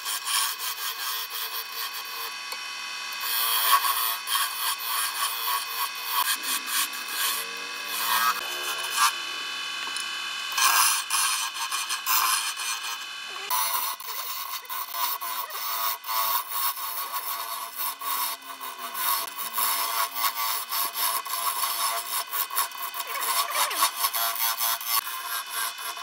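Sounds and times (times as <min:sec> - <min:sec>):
chisel scraping spinning wood: 0:00.0 - 0:02.4, 0:03.2 - 0:26.0.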